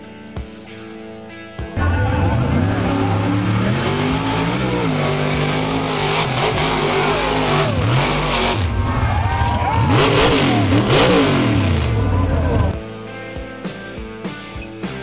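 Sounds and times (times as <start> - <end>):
truck engine revving: 1.8 - 12.8.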